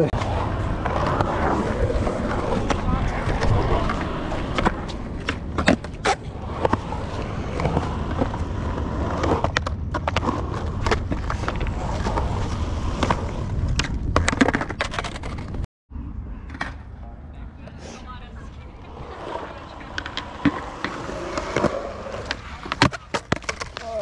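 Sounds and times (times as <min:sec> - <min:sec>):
skateboard wheels rolling on concrete: 0:00.0 - 0:15.6, 0:16.5 - 0:24.0
skateboard clacks: 0:19.6 - 0:24.0.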